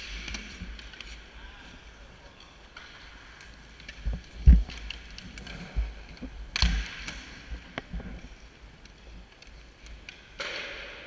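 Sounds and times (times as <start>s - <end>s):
hockey sticks tapping on ice: 0.0s - 1.2s, 2.4s - 11.0s.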